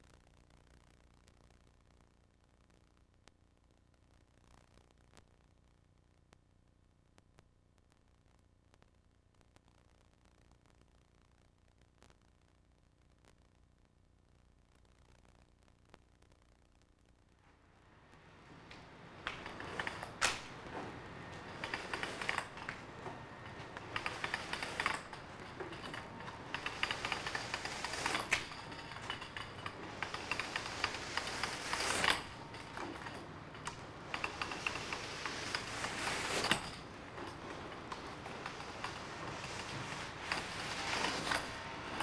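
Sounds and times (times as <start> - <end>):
bristles scratching on canvas: 20.9 - 33.3, 34.1 - 42.0.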